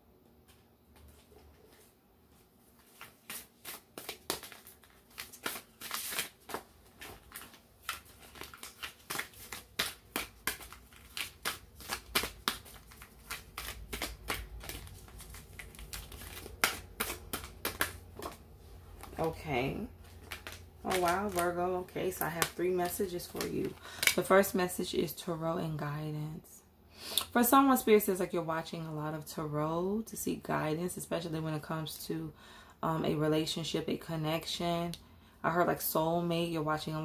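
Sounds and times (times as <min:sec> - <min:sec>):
cards being shuffled: 0:02.8 - 0:24.2.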